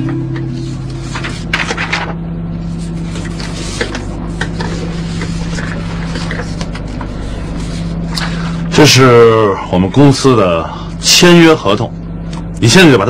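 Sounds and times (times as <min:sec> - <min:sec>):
steady low hum: 0:00.0 - 0:13.0
paper sheets rustling: 0:00.5 - 0:08.5.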